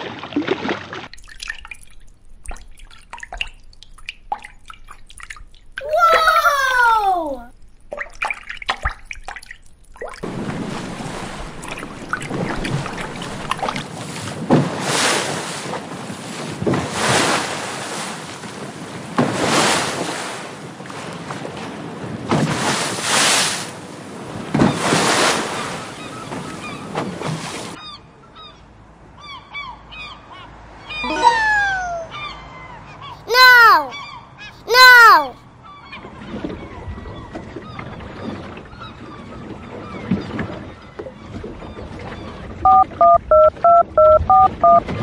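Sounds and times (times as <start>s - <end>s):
ocean waves washing: 5.8s - 7.5s, 10.2s - 27.8s.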